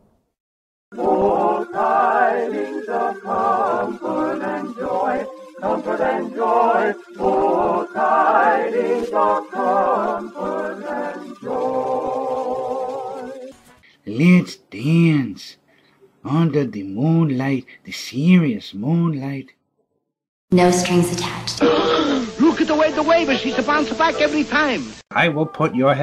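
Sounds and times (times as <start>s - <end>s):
a cappella singing voices: 0.9s - 13.7s.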